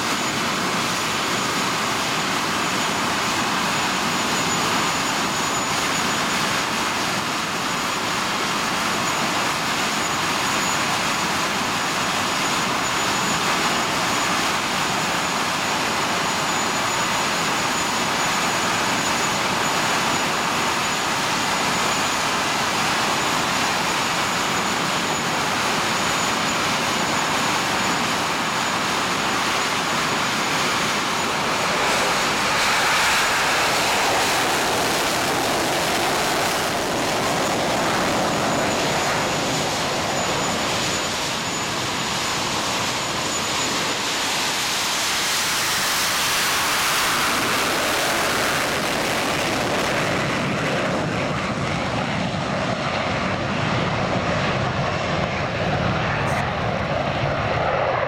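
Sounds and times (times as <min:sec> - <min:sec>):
high jet whine: 0:00.0 - 0:58.0
jet engine roar: 0:00.0 - 0:58.0.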